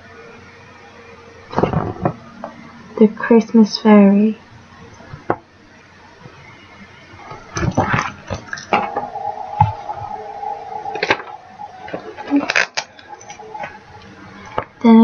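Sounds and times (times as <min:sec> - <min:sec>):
faint steady tone: 0:08.5 - 0:15.0.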